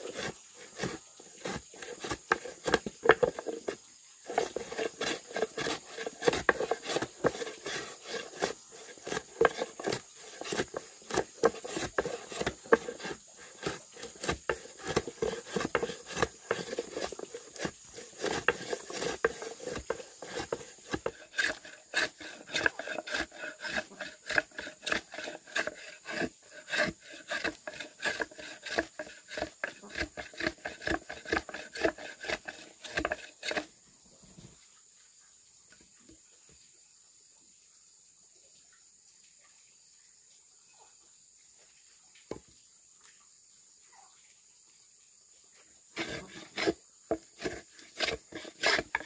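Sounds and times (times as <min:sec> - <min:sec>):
hand tools knocking and scraping wood: 0:00.0 - 0:33.7, 0:46.0 - 0:49.0.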